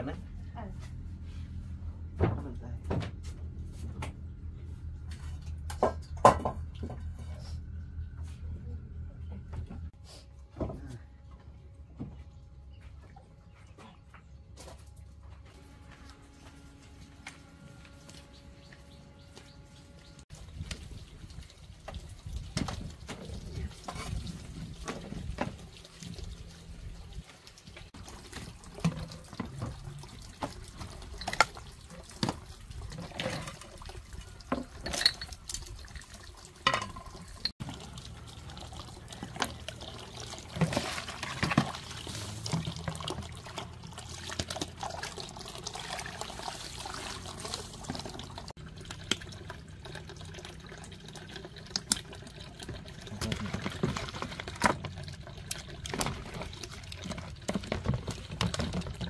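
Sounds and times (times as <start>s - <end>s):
water pouring and splashing in basin: 20.3s - 59.0s
dishes clinking: 34.8s - 35.3s.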